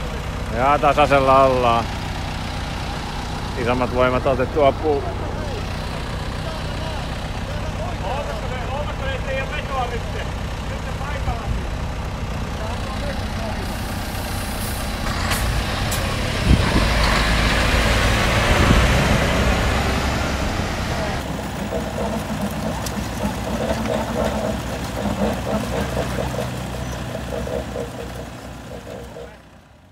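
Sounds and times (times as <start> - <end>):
vehicle engine working hard: 0.0 - 29.9
indistinct voices: 20.4 - 29.6.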